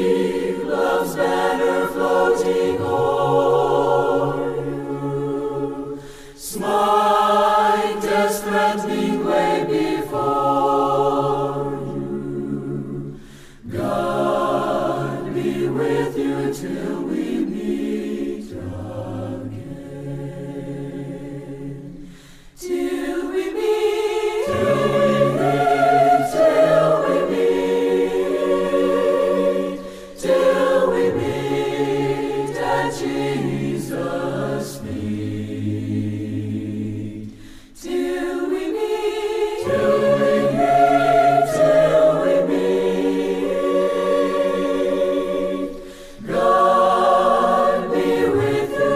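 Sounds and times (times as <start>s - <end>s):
choir singing a hymn: 0.0s - 48.9s.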